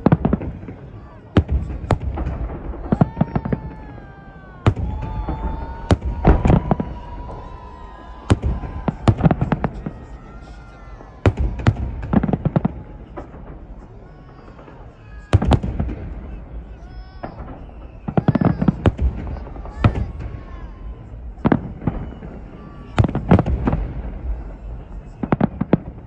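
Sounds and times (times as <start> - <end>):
fireworks bangs: 0.0 - 26.0
steady whistle-like tone: 17.2 - 18.7.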